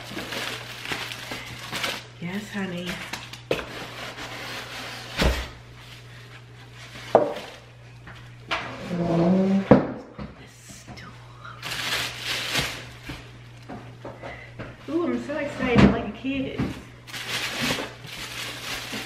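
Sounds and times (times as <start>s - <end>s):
plastic wrapping rustling: 0.0s - 9.4s, 11.6s - 14.0s, 16.2s - 19.0s.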